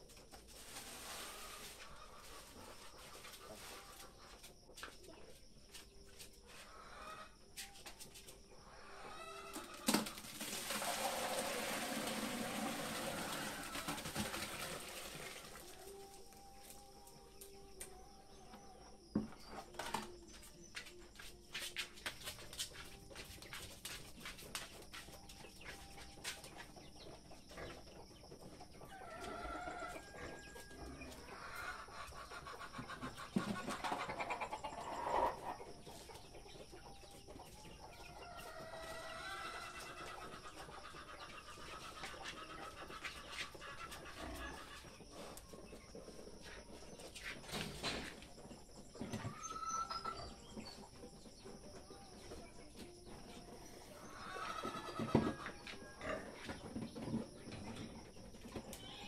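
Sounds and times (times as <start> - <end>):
chickens clucking: 0.0 - 59.0.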